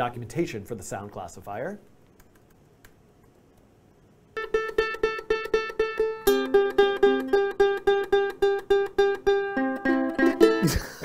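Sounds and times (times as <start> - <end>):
ukulele strings plucked: 4.4 - 11.0.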